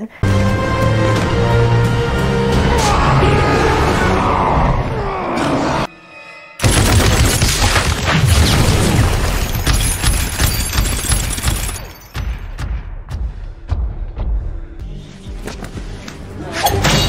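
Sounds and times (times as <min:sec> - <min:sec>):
rapid machine-gun fire: 0:06.6 - 0:09.3.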